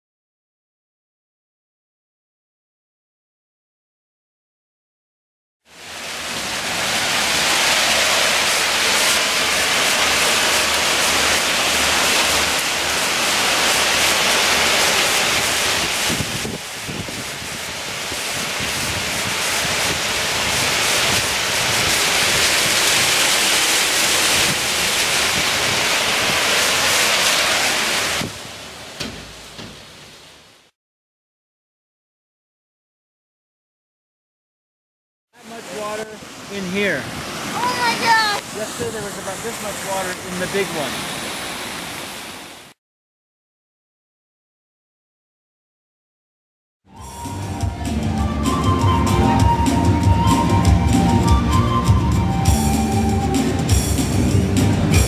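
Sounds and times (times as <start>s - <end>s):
heavy rain and hail: 5.7s - 30.7s, 35.4s - 42.6s, 47.2s - 55.0s.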